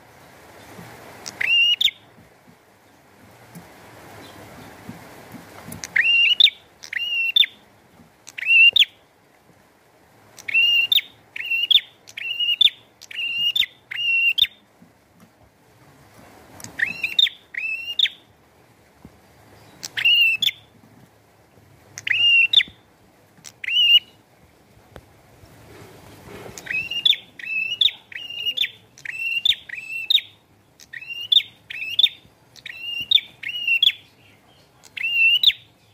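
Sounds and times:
bird singing sharp chirps: 5.9 - 7.6, 8.3 - 9.0, 10.4 - 14.6, 16.7 - 18.2, 19.6 - 20.6, 22.0 - 22.7, 23.5 - 24.2, 26.6 - 35.9.

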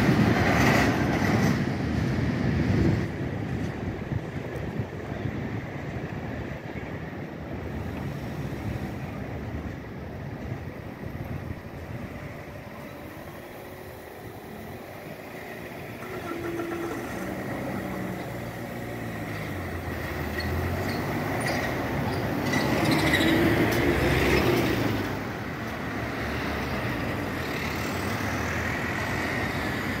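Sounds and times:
cars driving past: 10.8 - 30.0.

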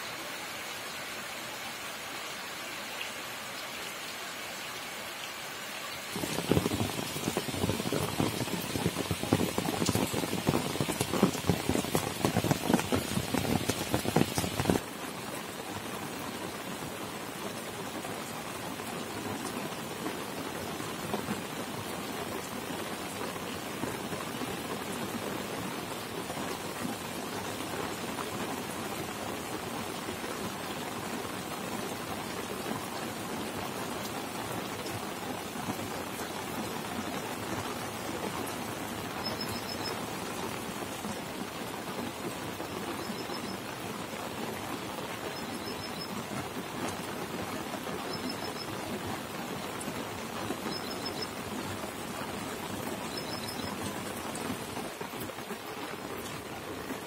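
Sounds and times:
rain falling on wet field: 0.0 - 57.0.

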